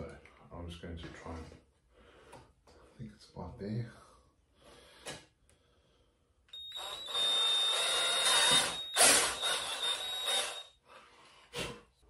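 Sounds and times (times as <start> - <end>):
cordless drill whining: 6.6 - 10.7.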